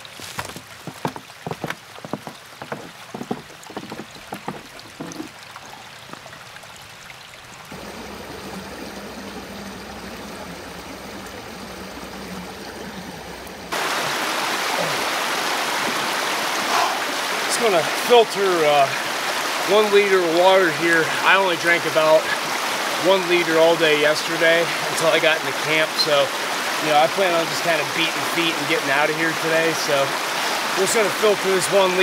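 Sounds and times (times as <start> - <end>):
crunches and knocks: 0.0 - 5.4
creek water rushing: 0.0 - 32.0.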